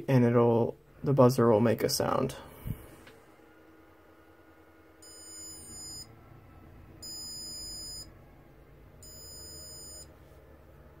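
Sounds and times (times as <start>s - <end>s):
high-pitched buzzer beeps: 5.0s - 6.1s, 7.0s - 8.1s, 9.0s - 10.1s.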